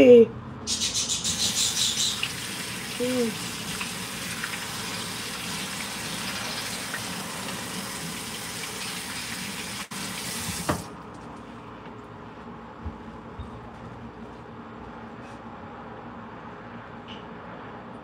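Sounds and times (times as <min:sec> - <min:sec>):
tap running into sink: 0:08.6 - 0:10.9
tap shutting off: 0:10.3 - 0:10.9.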